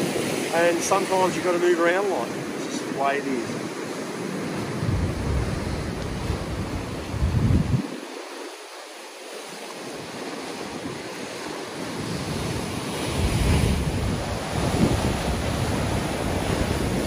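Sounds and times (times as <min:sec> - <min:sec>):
ocean waves breaking on rocks: 0:00.0 - 0:17.0
wind buffeting microphone: 0:03.3 - 0:08.8, 0:09.8 - 0:17.0.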